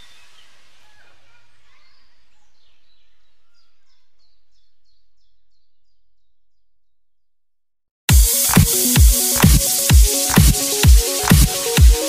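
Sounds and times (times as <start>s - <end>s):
bird chirping: 0.0s - 7.0s.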